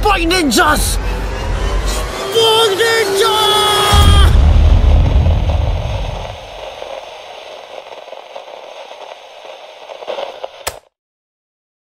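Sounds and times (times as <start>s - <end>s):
crackling static noise: 4.2s - 10.9s
sharp click: 10.6s - 10.9s.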